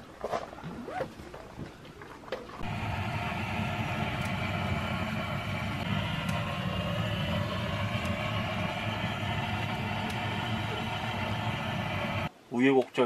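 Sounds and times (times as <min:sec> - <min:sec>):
gas torch roaring: 0:02.6 - 0:12.3.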